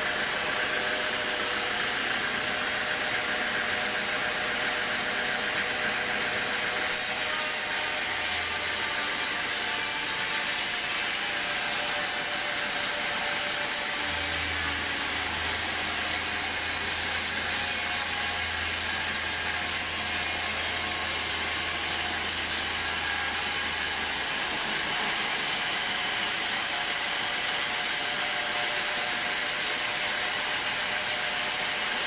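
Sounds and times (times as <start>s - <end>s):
sawmill machine running: 0.0s - 32.0s
band saw blade hissing through log: 6.9s - 10.9s.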